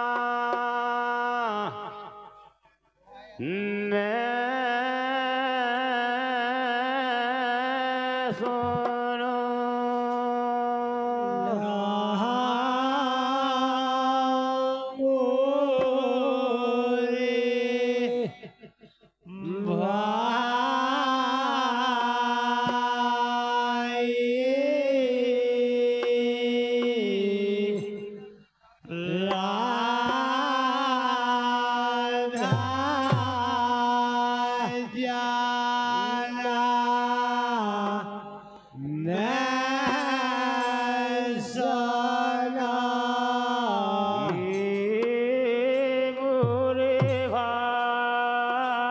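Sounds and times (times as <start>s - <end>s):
men singing into microphones: 0.0s - 2.5s, 3.4s - 48.9s.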